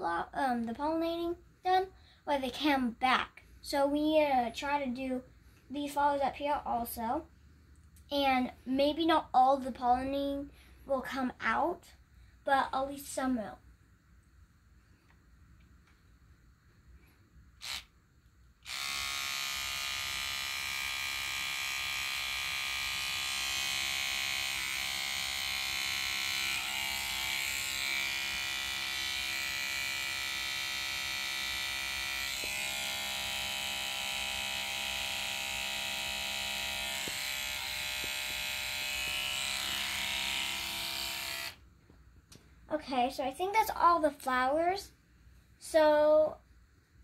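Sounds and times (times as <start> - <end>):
electric toothbrush buzzing: 17.6 - 17.9, 18.6 - 41.6.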